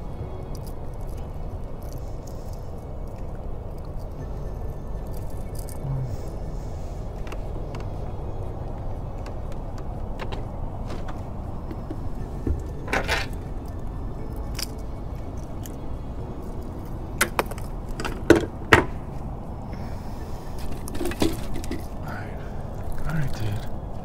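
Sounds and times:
steady low rumble: 0.0 - 24.0
fishing gear clicking and knocking: 5.0 - 5.9, 7.1 - 19.4, 20.5 - 22.1.

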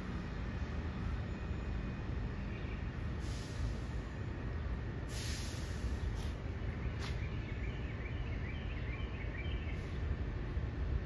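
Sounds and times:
subway train rumbling: 0.0 - 11.0
birds chirping: 0.6 - 3.3, 5.6 - 10.8
brake air hiss: 3.1 - 4.1, 5.0 - 7.2.

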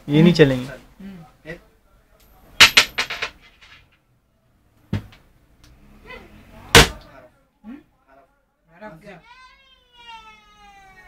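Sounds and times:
sharp knocks and bangs: 6.7 - 7.0.

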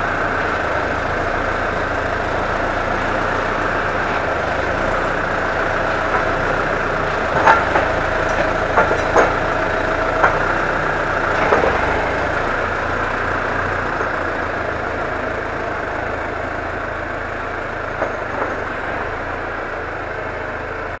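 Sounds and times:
tractor diesel engine: 0.0 - 21.0
metal clanks: 4.2 - 14.4.

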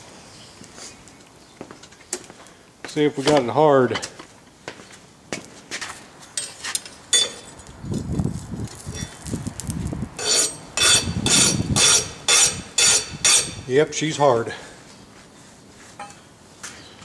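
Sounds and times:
file scraping steel: 10.2 - 13.6.

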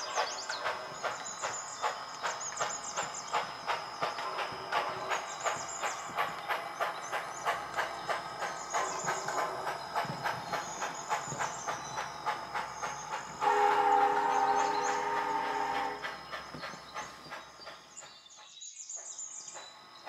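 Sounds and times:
model steam locomotive chuffing: 0.0 - 20.0
steam whistle blowing: 13.3 - 16.1.

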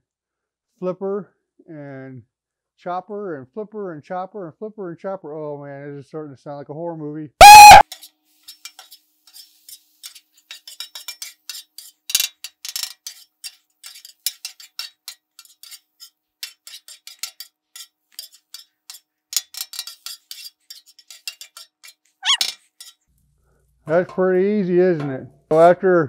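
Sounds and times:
metal spatula scraping griddle: 8.3 - 12.0.

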